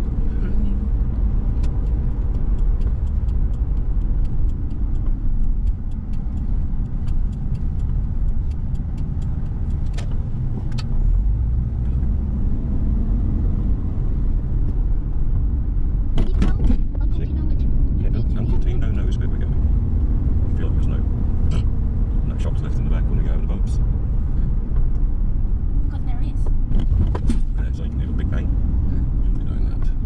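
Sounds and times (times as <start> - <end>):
car engine and tyres rumbling: 0.0 - 30.0
light ticks: 1.5 - 10.9
sharp clicks: 1.5 - 11.0.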